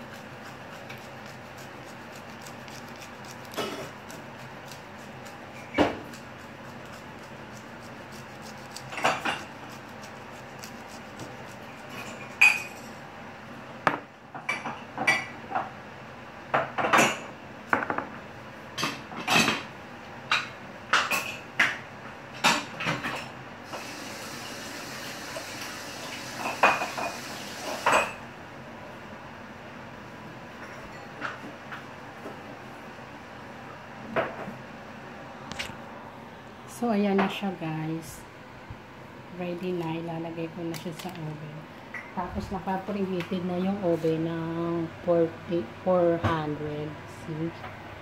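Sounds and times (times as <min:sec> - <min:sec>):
dishes and cutlery clinking: 0:11.8 - 0:13.0, 0:26.4 - 0:28.2.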